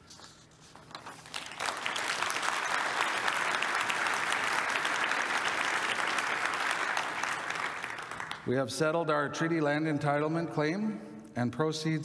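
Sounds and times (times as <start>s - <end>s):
audience applauding: 1.1s - 8.5s.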